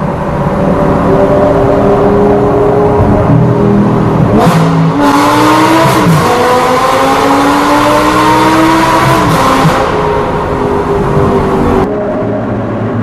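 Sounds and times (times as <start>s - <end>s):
car engine accelerating: 0.0s - 13.0s.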